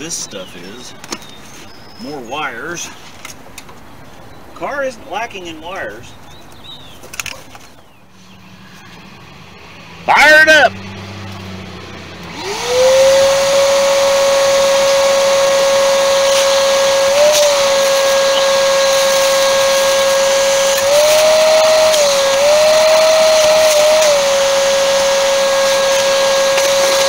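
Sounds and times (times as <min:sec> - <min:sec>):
shop vacuum motor whine: 0:10.3 - 0:27.0.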